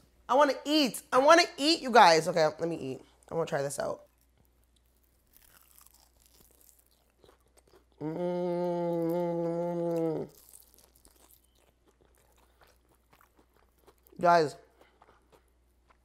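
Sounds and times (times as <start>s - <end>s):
chewing with faint crunches: 4.0s - 8.1s, 8.9s - 16.0s
person humming mmm: 8.0s - 10.5s.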